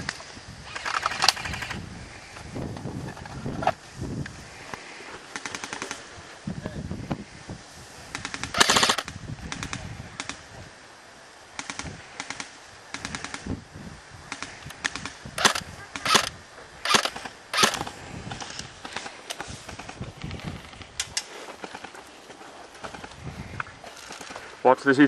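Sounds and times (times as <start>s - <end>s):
airsoft rifle bursts: 0.7s - 1.8s, 8.2s - 10.4s, 14.3s - 19.1s.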